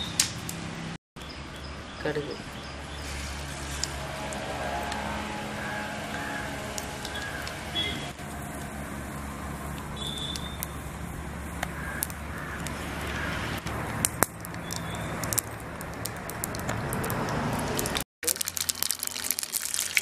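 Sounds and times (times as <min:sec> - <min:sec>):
seeds sizzling and popping in oil: 0:02.6 - 0:05.2, 0:06.0 - 0:20.0
steady low rumble: 0:02.8 - 0:13.1.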